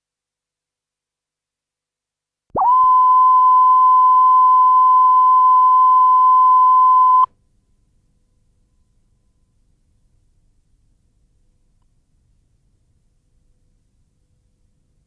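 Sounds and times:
steady test tone: 0:02.6 - 0:07.3.

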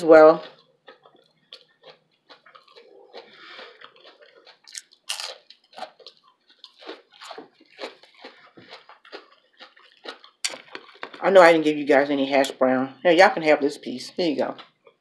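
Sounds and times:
soft wet chewing: 0:00.2 - 0:11.3, 0:14.3 - 0:15.0
crisp crunches: 0:00.4 - 0:11.2.

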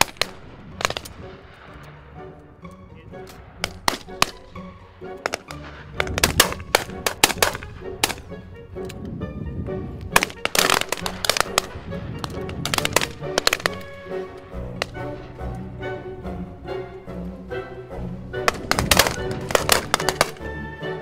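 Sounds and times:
shotguns firing: 0:00.0 - 0:02.4, 0:03.2 - 0:08.5, 0:10.0 - 0:15.7, 0:18.3 - 0:20.7
background music: 0:00.0 - 0:21.0.

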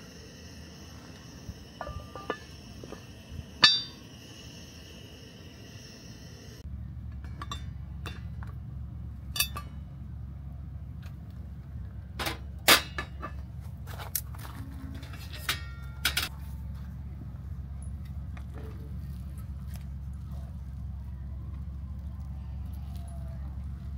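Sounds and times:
cast iron lid clanking: 0:01.7 - 0:04.1, 0:09.3 - 0:09.8.

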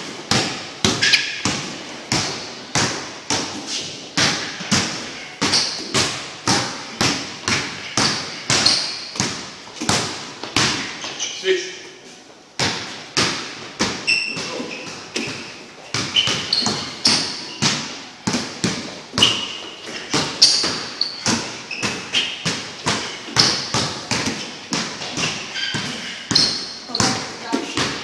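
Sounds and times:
basketball bouncing on gym floor: 0:00.0 - 0:11.2, 0:12.6 - 0:28.0
sneakers squeaking on floor: 0:00.2 - 0:12.0, 0:12.6 - 0:28.0.

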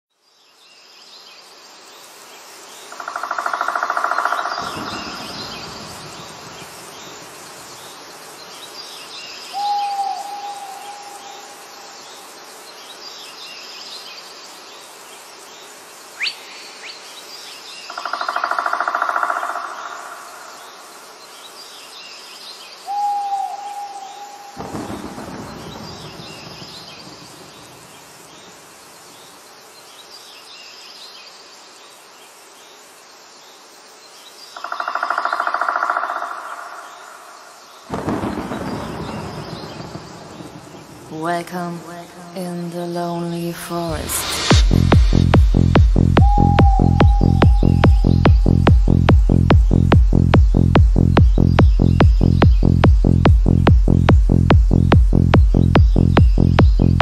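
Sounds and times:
bird calls and hoots: 0:09.1 - 0:12.2, 0:17.9 - 0:21.0, 0:22.8 - 0:26.6, 0:34.6 - 0:39.0, 0:46.2 - 0:49.8
faint high chirping: 0:46.2 - 0:49.5.

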